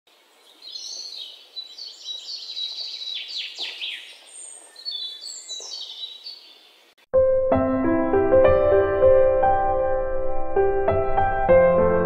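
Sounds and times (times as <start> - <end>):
birds chirping and twittering: 0.1 - 7.0.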